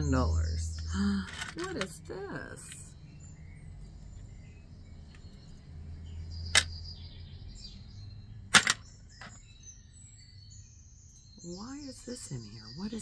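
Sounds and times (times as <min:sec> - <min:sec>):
metal jewelry clicking in tray: 0:01.3 - 0:02.0, 0:08.5 - 0:09.4.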